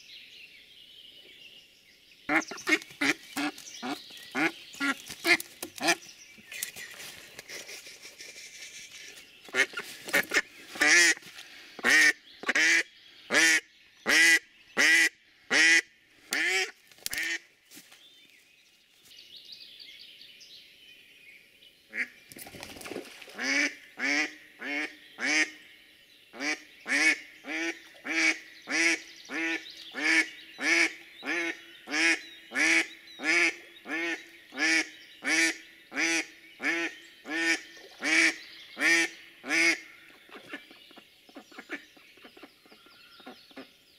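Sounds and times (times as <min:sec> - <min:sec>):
duck quacking: 0:07.5 - 0:11.2.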